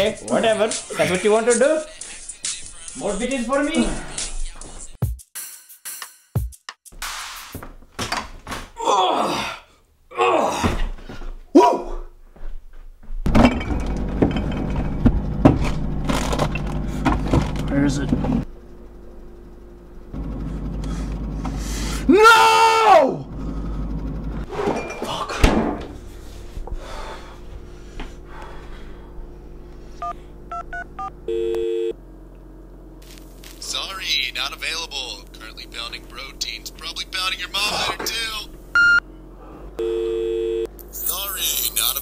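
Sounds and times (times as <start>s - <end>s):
man breathing heavily: 3.7s - 4.5s, 20.8s - 22.1s, 23.3s - 24.2s, 26.0s - 30.4s, 39.3s - 39.8s
man grunting with effort: 8.8s - 10.9s, 11.5s - 12.1s
objects clattering in cupboards: 13.3s - 17.6s
low hum: 13.3s - 41.8s.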